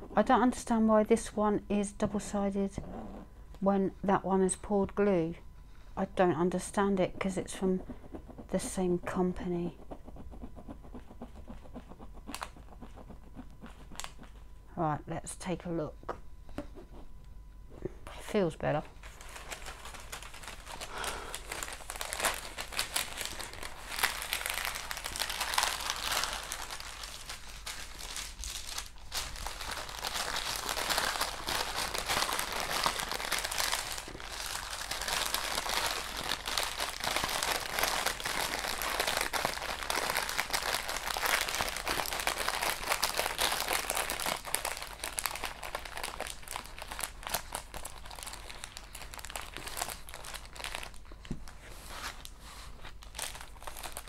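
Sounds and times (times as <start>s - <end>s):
plastic film crinkling: 11.5s - 14.5s, 18.8s - 54.0s.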